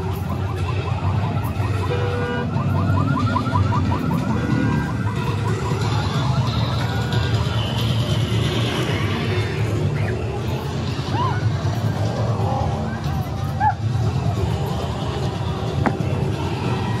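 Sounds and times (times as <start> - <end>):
siren warbling alarm: 0.0 - 17.0.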